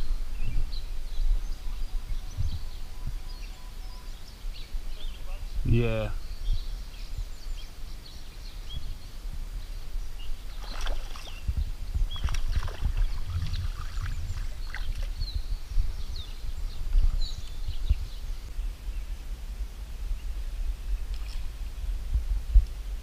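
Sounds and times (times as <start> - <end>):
small birds chirping: 0.0 - 22.9
fish splashing in water: 10.6 - 11.4, 12.2 - 15.1.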